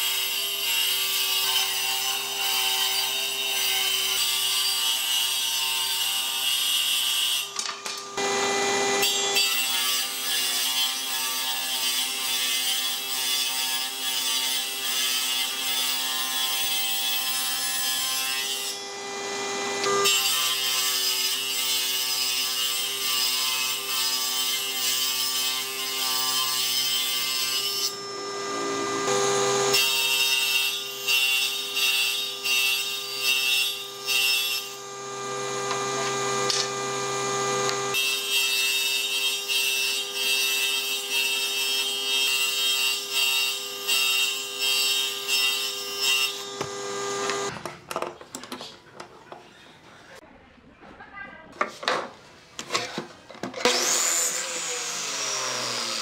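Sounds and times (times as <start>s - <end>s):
saw blade cutting wood: 0.0s - 47.5s, 53.6s - 56.0s
table saw motor whine: 7.5s - 9.8s, 18.1s - 20.1s, 27.4s - 38.1s, 45.0s - 47.5s, 53.6s - 56.0s.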